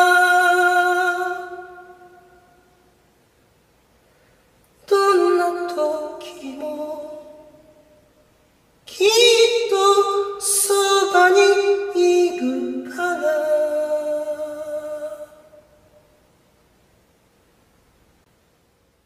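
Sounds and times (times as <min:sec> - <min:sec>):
person singing long notes: 0:00.0 - 0:02.7, 0:04.8 - 0:07.9, 0:08.9 - 0:15.8.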